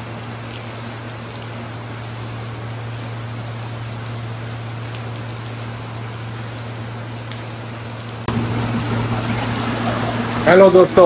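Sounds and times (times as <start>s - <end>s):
heavy rain: 0.0s - 11.0s
low hum: 2.0s - 10.5s.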